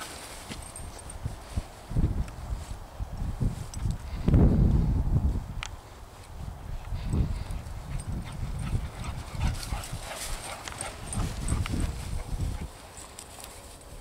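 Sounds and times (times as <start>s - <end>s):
dogs tussling in long grass: 0.0s - 2.8s, 7.0s - 14.0s.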